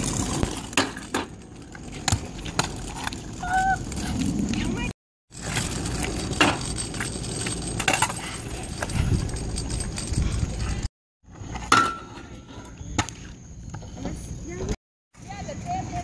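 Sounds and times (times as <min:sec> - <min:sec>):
scooter rolling and clattering: 0:00.0 - 0:12.4
scooter landing metallic clanks: 0:00.2 - 0:03.1, 0:05.4 - 0:10.8, 0:11.5 - 0:12.4.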